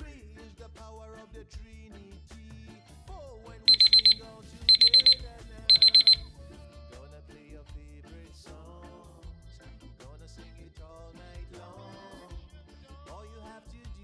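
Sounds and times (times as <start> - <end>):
background music: 0.0 - 14.0
alarm clock beeping: 3.7 - 6.3.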